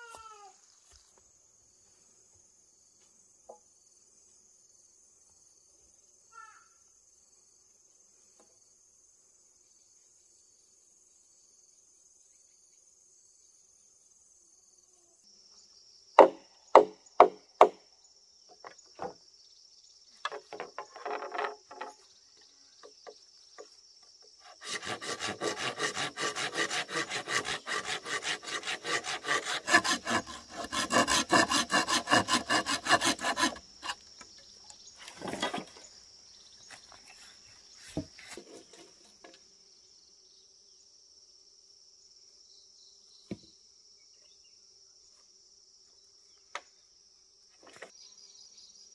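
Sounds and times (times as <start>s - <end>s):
crickets chirring: 0.0s - 48.9s
sharp knocks on wood: 16.2s - 17.8s, 43.3s - 43.5s
hand saw cutting wood: 24.4s - 34.1s.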